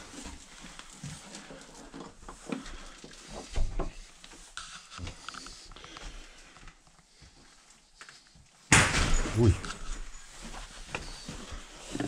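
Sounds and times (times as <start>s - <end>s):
footsteps indoors: 0.0s - 12.0s.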